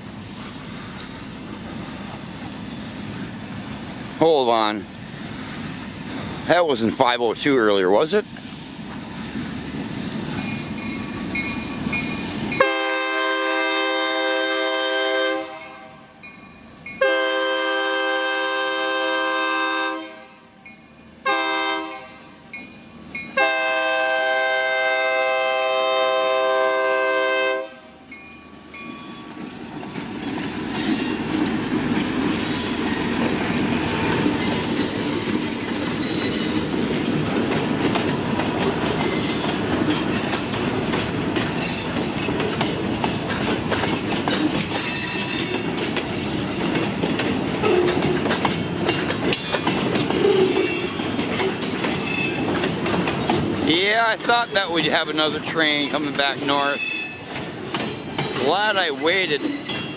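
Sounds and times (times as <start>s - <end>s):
train wheels clattering on rails: 0.0s - 14.3s, 28.2s - 59.9s
locomotive air horn blasts: 12.6s - 16.0s, 17.0s - 20.5s, 21.2s - 22.3s, 23.4s - 27.9s.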